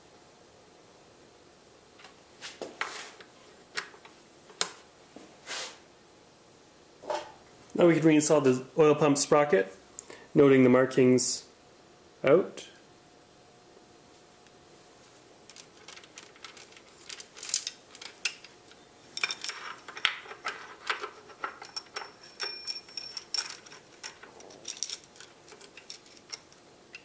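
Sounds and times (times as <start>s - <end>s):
metal chain clinking: 15.8s - 26.6s.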